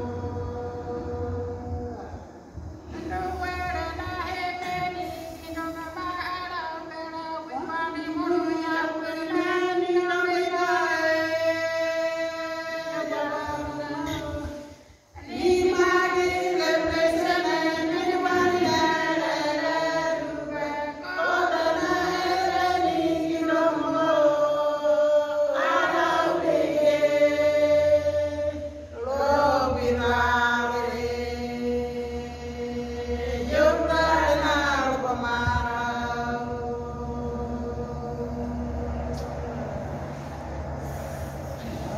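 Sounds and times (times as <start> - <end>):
women singing together: 0.0 - 40.9.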